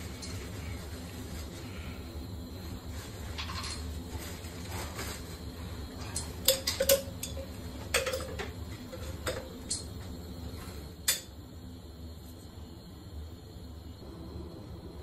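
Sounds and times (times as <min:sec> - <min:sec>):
low hum: 0:13.8 - 0:15.0.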